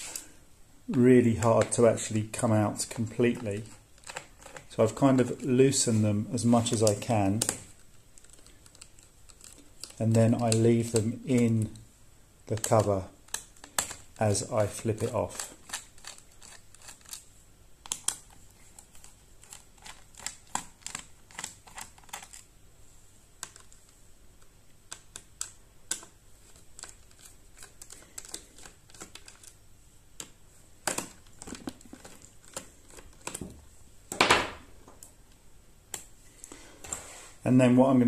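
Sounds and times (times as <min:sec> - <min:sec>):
brief scraping noise: 0:36.8 - 0:37.4.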